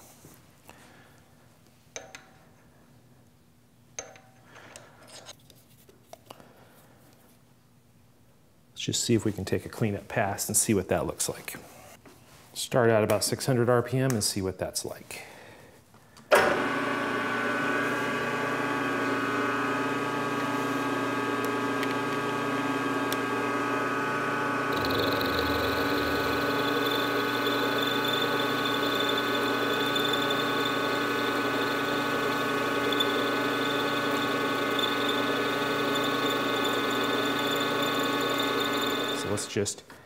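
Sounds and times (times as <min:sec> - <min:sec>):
milling machine spindle whine: 0:21.1 - 0:39.5
higher machine whine: 0:24.4 - 0:39.4.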